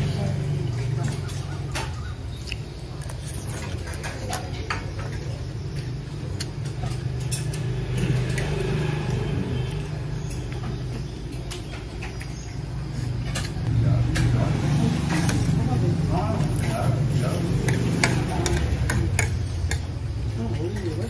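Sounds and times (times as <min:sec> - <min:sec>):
low motor rumble: 0:00.0 - 0:21.0
utensils clicking on a plate: 0:17.6 - 0:21.0.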